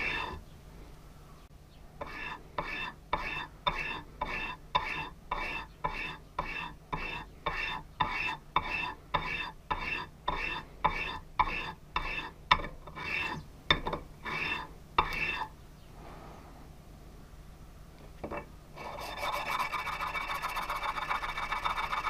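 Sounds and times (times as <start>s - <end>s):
metal rubbed on sandpaper: 0.0s - 0.4s, 2.0s - 12.3s, 12.9s - 13.4s, 18.8s - 22.0s.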